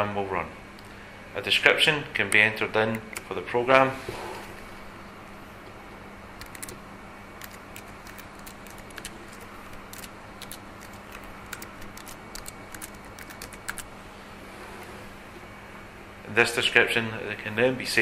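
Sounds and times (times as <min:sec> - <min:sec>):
faint steady hum: 0:00.0 - 0:18.0
computer keyboard typing: 0:06.4 - 0:06.8, 0:07.4 - 0:13.9.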